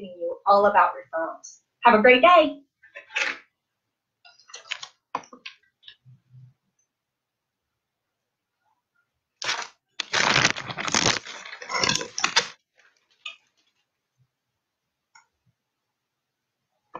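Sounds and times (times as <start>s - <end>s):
phone microphone rubbing and crackling: 9.4s - 13.8s.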